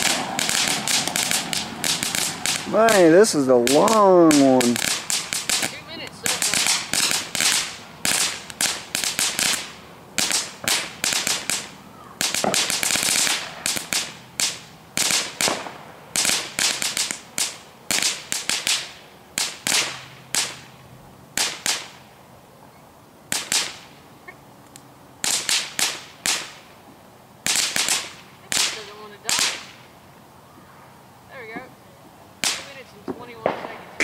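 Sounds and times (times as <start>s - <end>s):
firework crackling pops: 0.0s - 22.2s, 23.3s - 24.1s, 24.7s - 30.0s, 31.3s - 31.8s, 32.4s - 34.0s.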